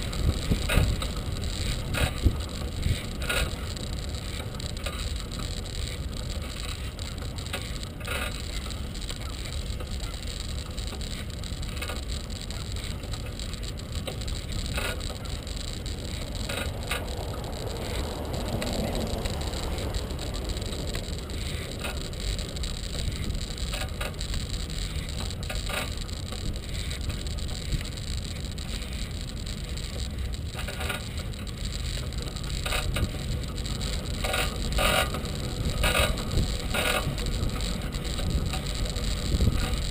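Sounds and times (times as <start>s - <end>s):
wind on microphone: 0.0s - 4.3s, 14.5s - 25.5s, 33.8s - 39.9s
bicycle tyres rumbling: 0.0s - 39.9s
bike clicks and rattles: 0.0s - 39.9s.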